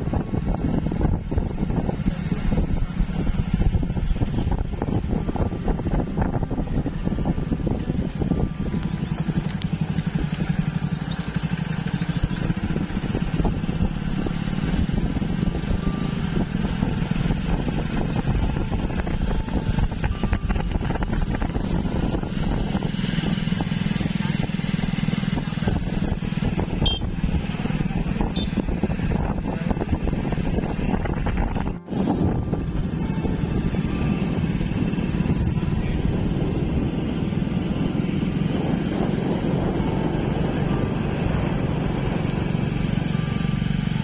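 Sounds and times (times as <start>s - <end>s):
motorcycle engines running: 0.0s - 44.0s.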